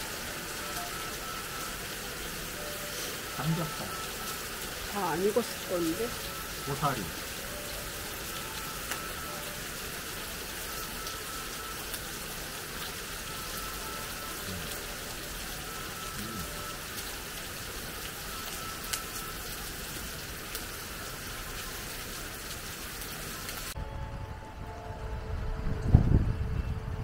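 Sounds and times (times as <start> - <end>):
heavy rain pouring: 0.0 - 27.0
raindrop ticks on surface: 2.6 - 9.6, 10.7 - 20.8.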